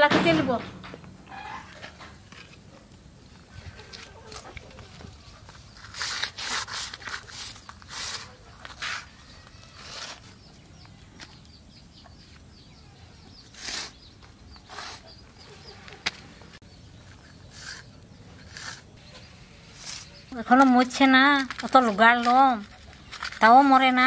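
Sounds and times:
fish scraped on packed earth: 5.8 - 10.3, 13.5 - 14.0, 17.5 - 20.2.

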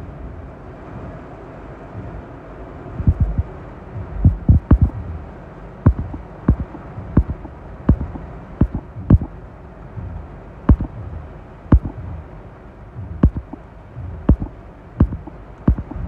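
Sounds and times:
heavy rain on a car: 0.0 - 4.0.

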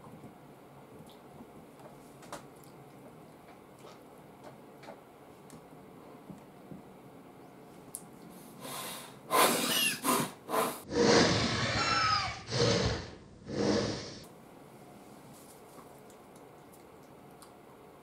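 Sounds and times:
harsh breathy cough-like bursts: 8.6 - 11.3.

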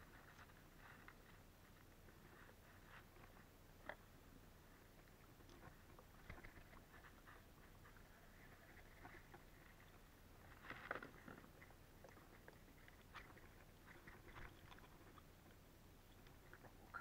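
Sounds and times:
fishing gear clicks and rustles: 4.9 - 7.8, 8.7 - 17.0.

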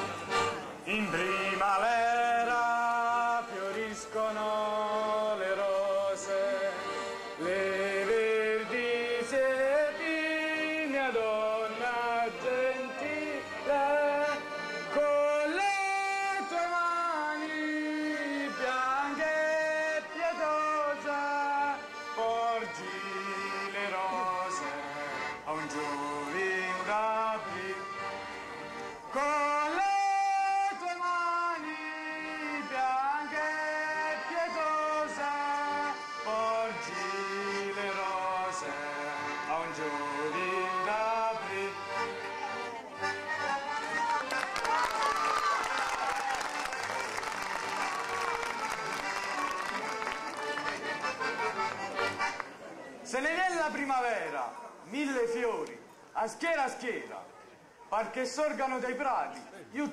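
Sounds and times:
folk music on accordions: 0.0 - 53.8.

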